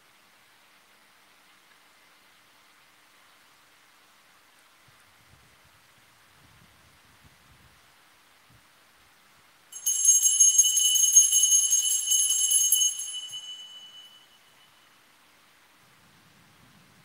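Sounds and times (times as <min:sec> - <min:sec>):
small bells shaken rapidly: 0:09.8 - 0:14.4.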